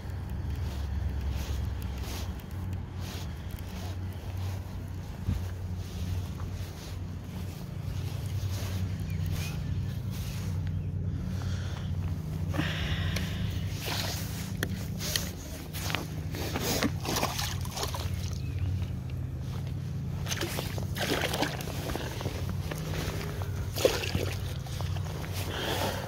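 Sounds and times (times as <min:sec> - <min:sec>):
wind rumble on microphone: 0:00.0 - 0:16.5
water sloshing and splashing: 0:13.8 - 0:26.0.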